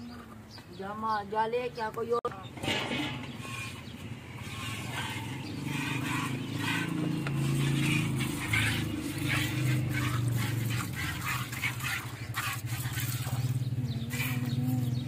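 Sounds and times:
milk squirting into steel pail: 4.4 - 14.4.

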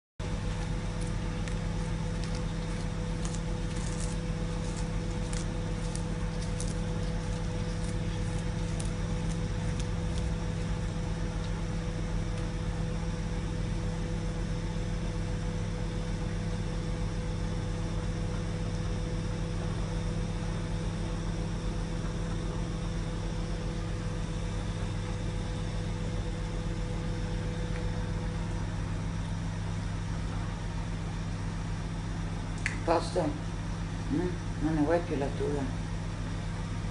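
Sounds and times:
cat crunching lettuce: 0.2 - 13.0
microwave oven humming: 0.2 - 36.9.

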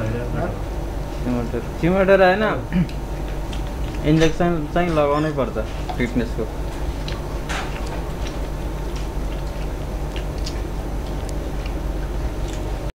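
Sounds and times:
steady low hum: 0.0 - 12.9
clicks and taps of eating: 2.8 - 4.4, 7.0 - 12.9.

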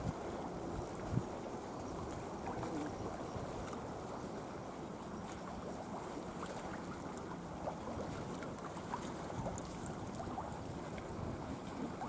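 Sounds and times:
wind on microphone: 0.0 - 3.8
seawater lapping against concrete: 0.0 - 12.0.

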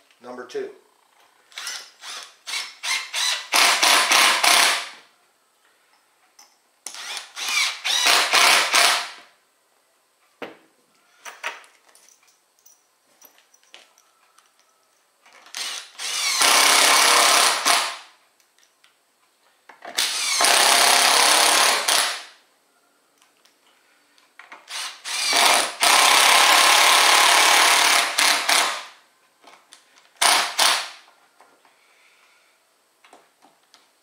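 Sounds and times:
impact driver driving screws: 1.5 - 5.0, 6.9 - 9.2, 15.5 - 18.0, 19.9 - 22.3, 24.6 - 28.9, 30.2 - 31.0.

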